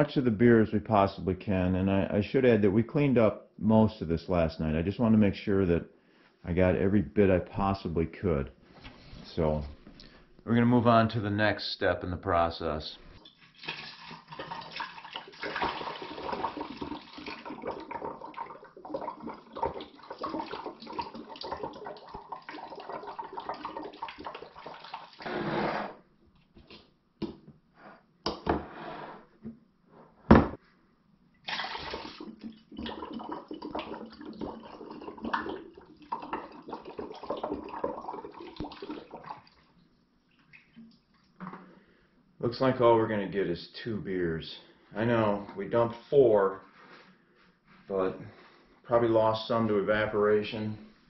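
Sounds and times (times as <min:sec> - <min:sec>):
liquid pouring into glass bottle: 0:13.2 - 0:25.2, 0:31.5 - 0:39.6.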